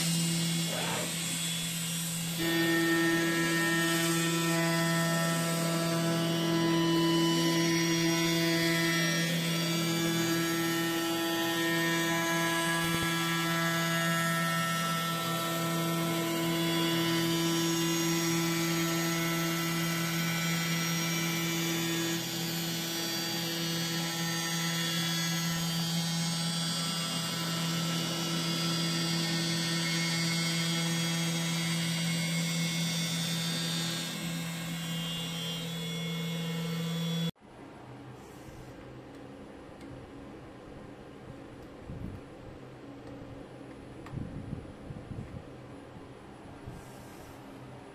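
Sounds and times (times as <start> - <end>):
milling spindle humming whine: 0.0 - 37.4.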